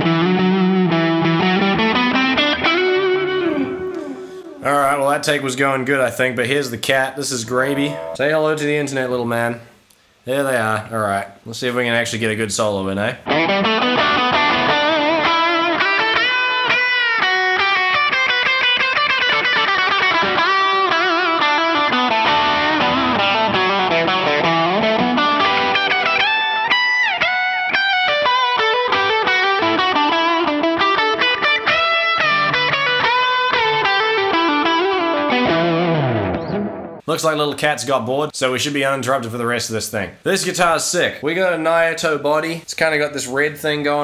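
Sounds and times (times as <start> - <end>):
distorted electric guitar solo: 0.0 - 4.6, 7.5 - 8.2, 13.2 - 37.0.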